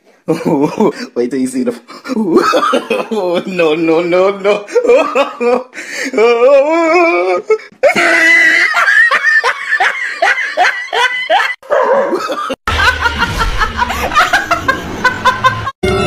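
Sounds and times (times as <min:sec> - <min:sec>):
hearty laughter: 0:02.1 - 0:03.6, 0:04.4 - 0:05.8, 0:07.8 - 0:15.8.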